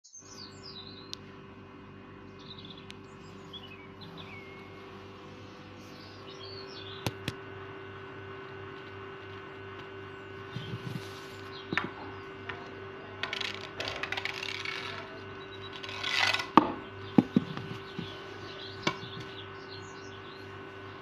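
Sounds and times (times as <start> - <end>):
steady low hum: 0.1 - 21.0.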